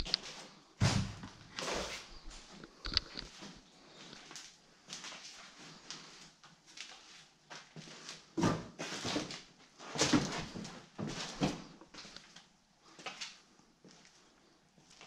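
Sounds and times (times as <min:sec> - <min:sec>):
footsteps on hard floor: 0:00.8 - 0:02.0.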